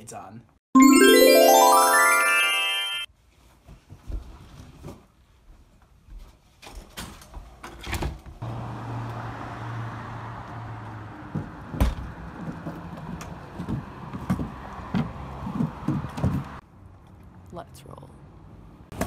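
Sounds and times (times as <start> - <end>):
traffic hum: 8.4 - 19.0.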